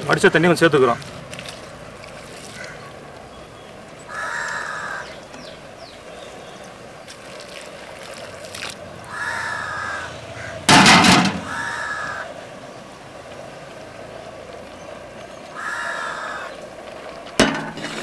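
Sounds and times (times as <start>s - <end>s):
crows cawing: 2.4s - 3.0s, 4.1s - 5.3s, 9.0s - 12.4s, 15.5s - 16.7s.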